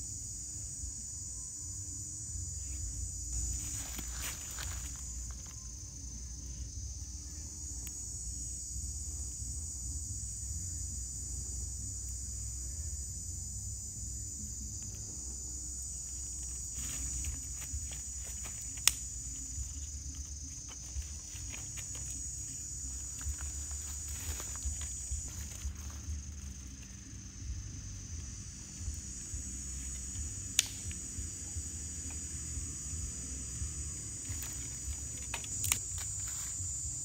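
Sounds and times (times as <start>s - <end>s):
insects chorus: 0.0s - 37.0s
twigs crackling in wood fire: 16.4s - 27.0s, 28.6s - 31.1s, 34.2s - 37.0s.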